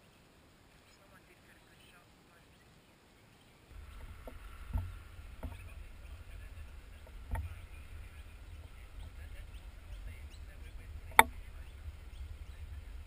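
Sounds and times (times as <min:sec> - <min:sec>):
wind buffeting microphone: 0:03.7 - 0:13.0
dull knocks: 0:03.8 - 0:13.0.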